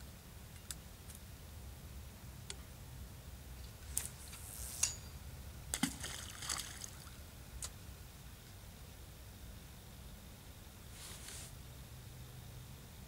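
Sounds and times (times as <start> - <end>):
splash in river: 5.8 - 7.1
brief rustle: 11.0 - 11.5.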